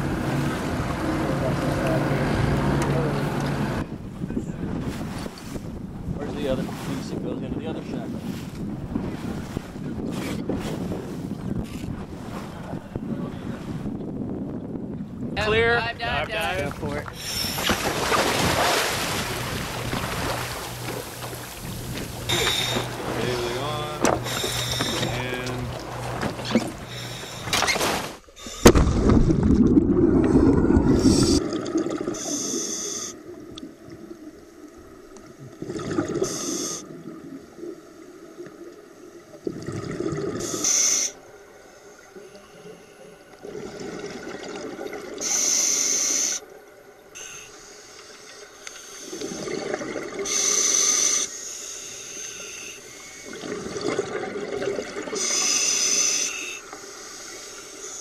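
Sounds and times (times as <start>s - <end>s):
rush of water: 15.4s - 32.4s
diver exhaling bubbles: 28.4s - 33.2s, 35.4s - 37.4s, 39.4s - 41.1s, 43.4s - 45.4s, 49.1s - 51.2s, 53.2s - 55.6s.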